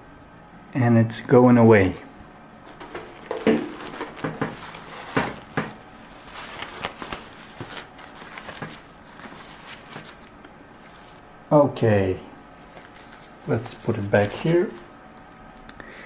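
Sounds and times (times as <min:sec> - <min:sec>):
diaper rustling and crinkling: 0:02.7 - 0:11.3, 0:12.6 - 0:15.0.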